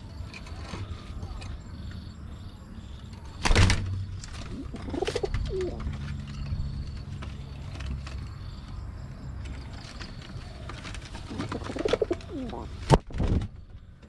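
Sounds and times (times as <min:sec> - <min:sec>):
pigeon wings flapping: 0:03.4 - 0:06.2, 0:10.7 - 0:13.5
pigeons cooing: 0:04.3 - 0:06.1, 0:10.3 - 0:12.8.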